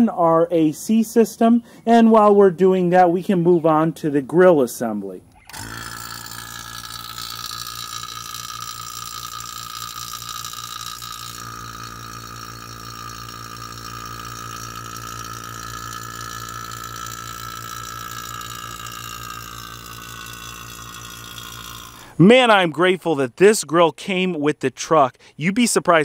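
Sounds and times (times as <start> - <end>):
vacuum pump whining hum: 5.4 - 22.2.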